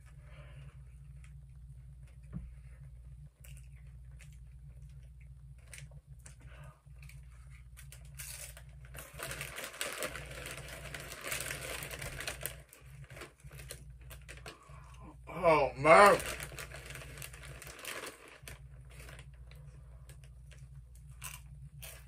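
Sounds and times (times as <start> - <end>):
foil bag crinkling: 5.4 - 22.0
chips crunching while chewed: 7.9 - 14.6, 20.5 - 22.0.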